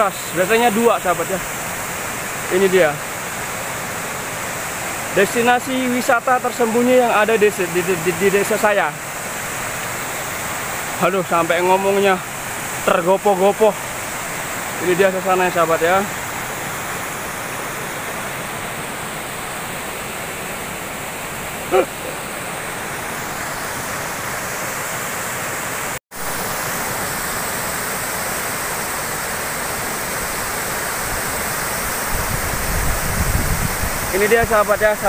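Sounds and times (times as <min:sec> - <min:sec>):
waterfall roaring: 0:00.0 - 0:35.0
short vocal sound: 0:21.7 - 0:22.2.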